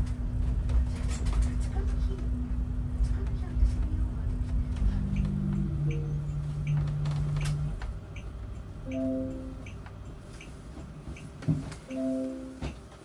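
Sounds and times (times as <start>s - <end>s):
bus rumble from inside: 0.0s - 13.0s.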